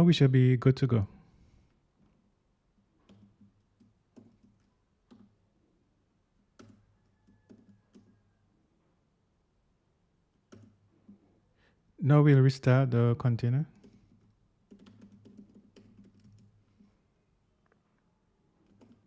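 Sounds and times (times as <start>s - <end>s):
computer keyboard keystrokes: 3.0s - 5.4s, 6.5s - 8.2s, 10.4s - 11.2s, 13.7s - 16.6s, 18.6s - 19.0s.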